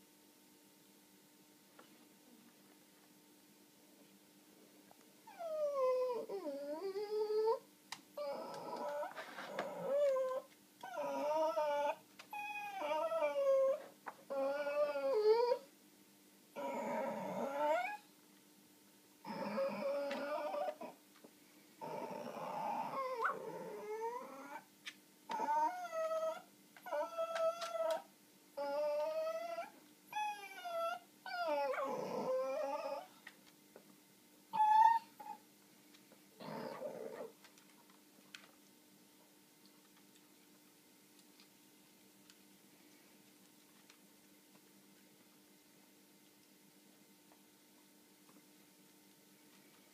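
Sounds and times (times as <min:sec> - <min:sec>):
small dog whining: 0:05.3 - 0:07.6, 0:08.2 - 0:15.7, 0:16.6 - 0:18.1, 0:19.2 - 0:21.0, 0:21.8 - 0:24.7, 0:25.3 - 0:33.2, 0:34.5 - 0:35.4, 0:36.4 - 0:37.4.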